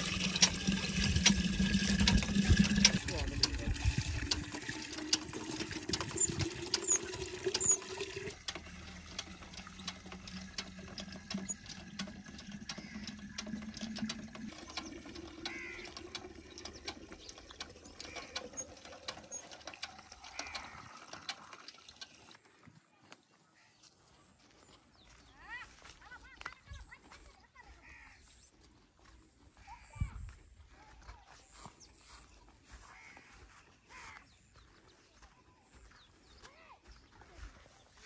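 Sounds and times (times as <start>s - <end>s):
hand pump mechanism clicking: 0.0s - 22.4s
water running into clay pot: 0.0s - 22.4s.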